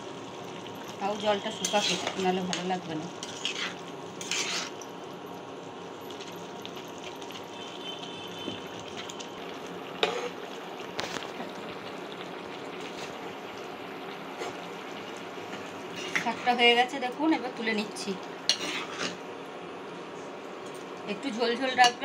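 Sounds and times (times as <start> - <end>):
curry simmering and bubbling: 0.0 - 21.1.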